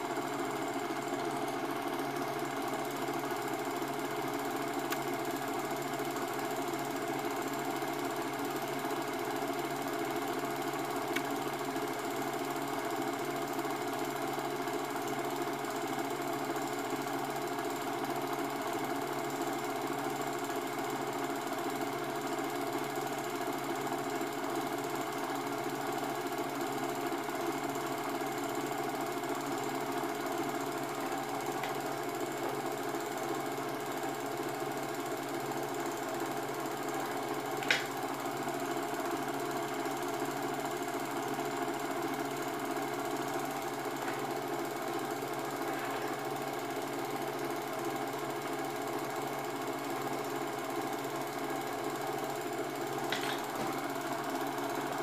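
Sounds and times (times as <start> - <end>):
film projector whirring: 0.0 - 55.0.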